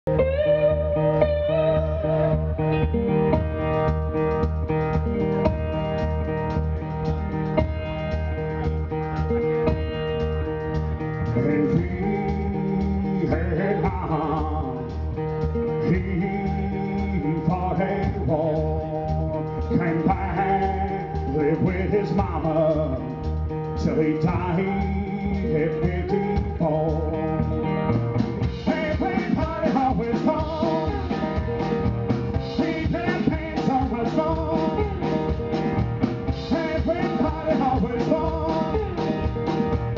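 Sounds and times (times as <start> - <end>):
steady drum beat: 3.3 - 39.9
man singing: 11.3 - 27.6, 28.4 - 35.4, 36.3 - 39.4.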